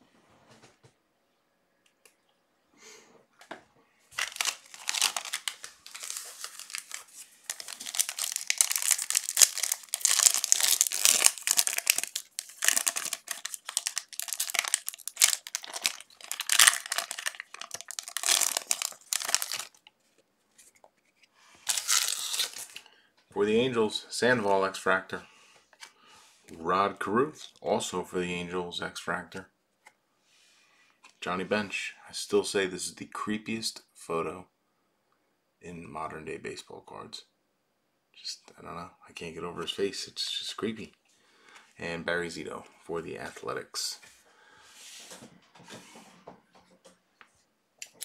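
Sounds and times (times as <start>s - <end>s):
foil wrappers tearing and crinkling: 4.2s - 19.9s, 21.6s - 22.8s.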